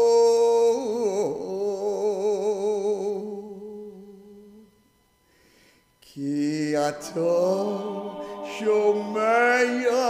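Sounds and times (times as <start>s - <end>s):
man chanting with vibrato: 6.2s - 10.0s.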